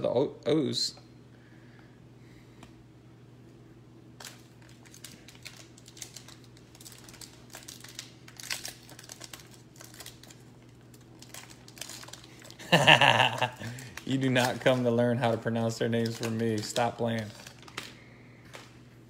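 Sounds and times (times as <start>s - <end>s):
wrapper crinkling and tearing: 4.2s - 18.8s.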